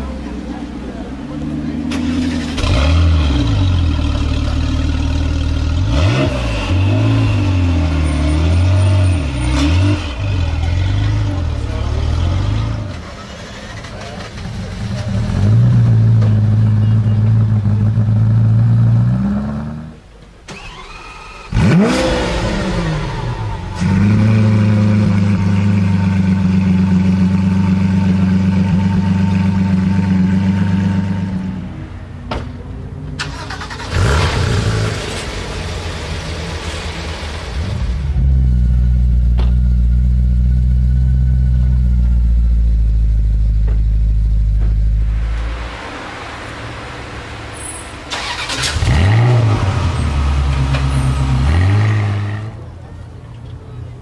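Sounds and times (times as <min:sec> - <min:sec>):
engine cranking whine: 0:20.5 - 0:24.0, 0:44.8 - 0:51.5
car engine idling: 0:35.0 - 0:51.5.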